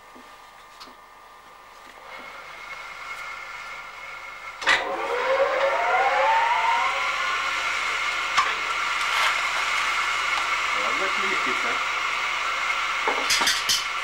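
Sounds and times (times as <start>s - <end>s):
rising whine: 2.0s - 13.1s
machine flywheel whining: 2.0s - 14.0s.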